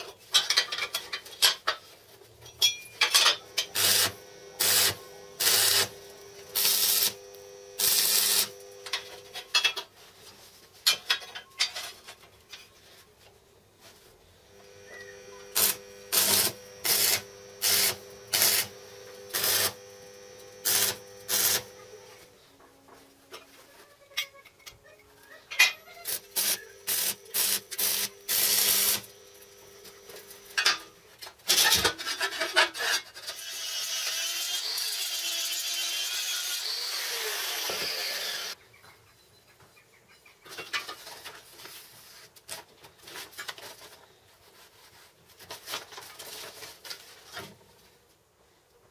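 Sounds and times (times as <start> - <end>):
angle grinder cutting steel: 3.1 - 9.5, 14.5 - 22.3, 26.0 - 38.6
arc welding crackling bursts: 3.6 - 9.0, 14.6 - 22.3, 26.0 - 30.6.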